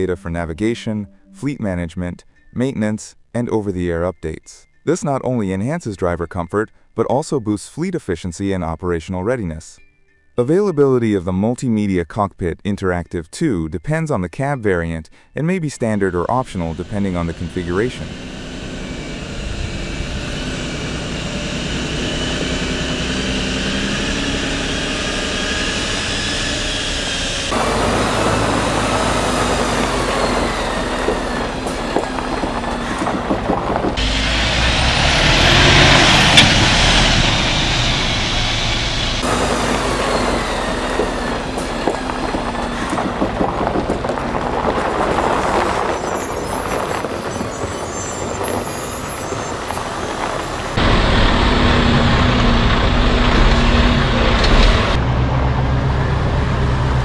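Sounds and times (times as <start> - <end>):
truck diesel engine under load: 16.0 - 57.0
truck driving over gravel: 16.1 - 57.0.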